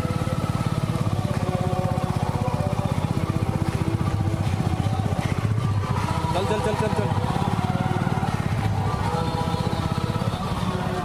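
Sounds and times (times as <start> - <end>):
vehicle engine puttering: 0.0 - 11.0.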